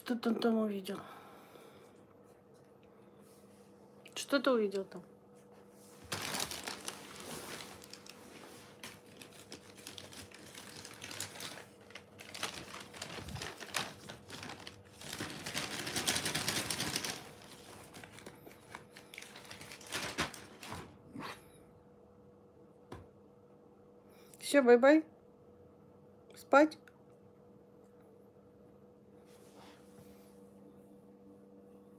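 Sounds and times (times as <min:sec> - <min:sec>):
plastic bag crinkling: 0:06.0 - 0:20.9.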